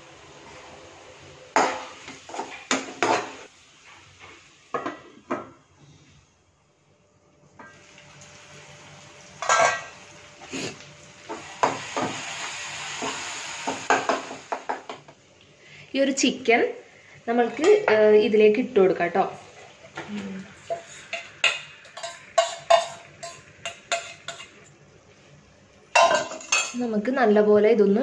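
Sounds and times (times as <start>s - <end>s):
masala sizzling in pan: 0.0s - 6.2s, 7.5s - 15.6s, 16.4s - 27.2s
metal spatula clanking on pan: 9.4s - 9.9s, 20.7s - 24.6s, 26.0s - 26.8s.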